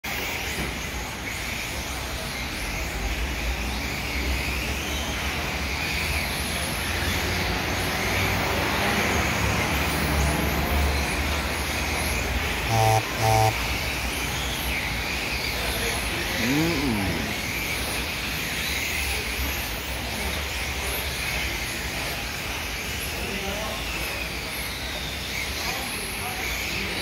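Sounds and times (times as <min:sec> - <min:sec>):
short buzzer tone: 0:12.7 - 0:13.6.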